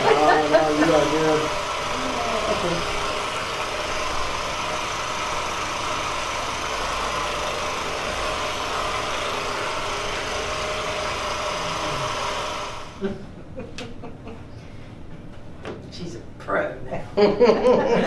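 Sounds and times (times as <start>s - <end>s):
massage gun motor buzz: 0.0s - 13.0s.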